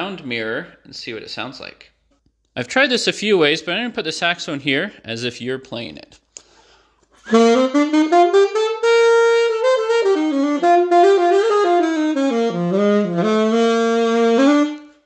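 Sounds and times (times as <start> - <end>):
saxophone playing jazz phrase: 7.2 - 15.0.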